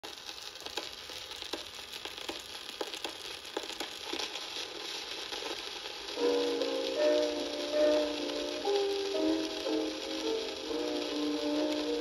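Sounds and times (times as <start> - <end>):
record clicks and pops: 0.0 - 12.0
record surface hiss and crackle: 0.0 - 12.0
music from a record: 2.8 - 12.0.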